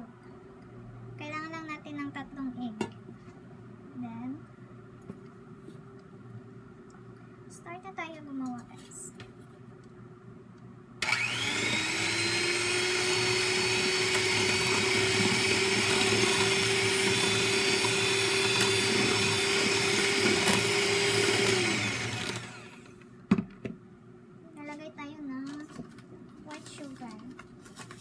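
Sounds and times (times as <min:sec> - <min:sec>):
electric hand mixer whining: 0:11.0 - 0:23.0.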